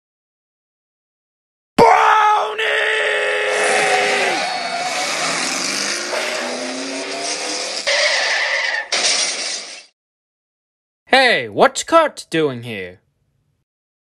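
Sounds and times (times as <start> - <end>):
tyres skidding and squealing: 3.0 - 9.9
race car engine accelerating: 3.5 - 7.9.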